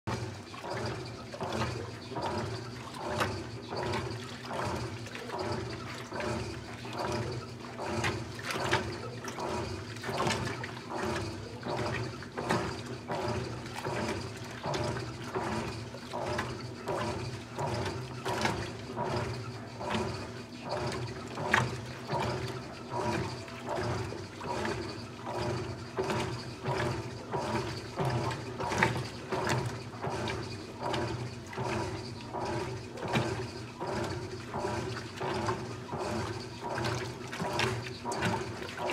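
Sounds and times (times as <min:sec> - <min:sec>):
washing machine water sloshing: 0:00.0 - 0:38.9
motor hum: 0:00.1 - 0:38.9.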